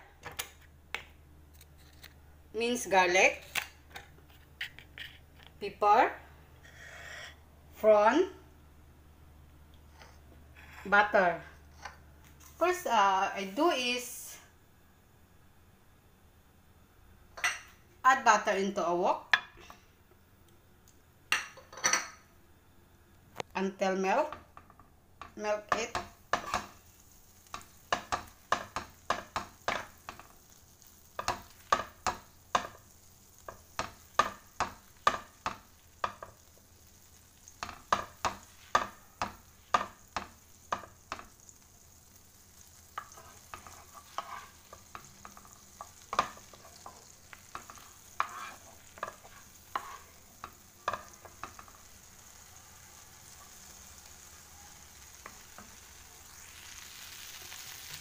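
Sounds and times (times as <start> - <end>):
wooden spatula scraping wok: 4.2 - 5.4, 9.9 - 12.8, 25.7 - 41.4, 42.4 - 52.2
butter sizzling: 9.8 - 14.3, 23.6 - 58.0.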